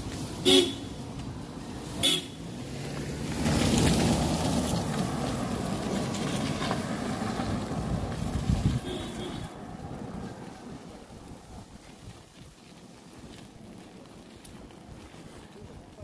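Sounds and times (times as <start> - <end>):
car tyres swishing on wet road: 0.0 - 16.0
car horn toots: 0.4 - 0.9, 2.0 - 2.4, 8.7 - 9.6.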